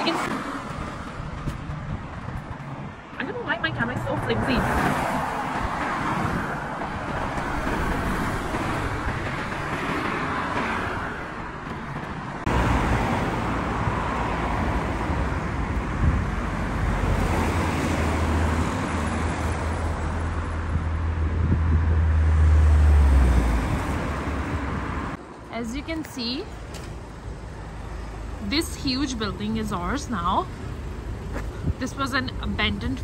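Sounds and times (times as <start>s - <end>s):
cars driving past: 0.0s - 33.0s.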